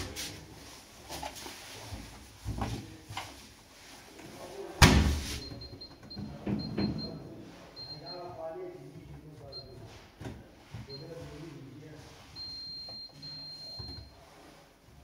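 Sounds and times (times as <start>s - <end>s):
washing machine door thudding shut: 4.8s - 5.2s.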